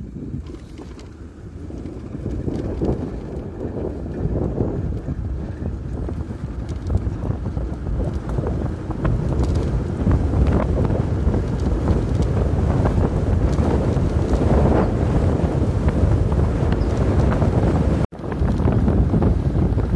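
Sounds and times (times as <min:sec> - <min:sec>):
wind rushing over microphone: 0:00.0 - 0:19.9.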